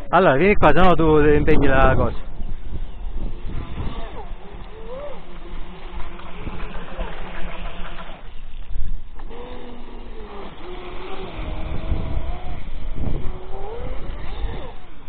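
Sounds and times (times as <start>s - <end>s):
rc boat motor whine: 1.7s - 15.0s.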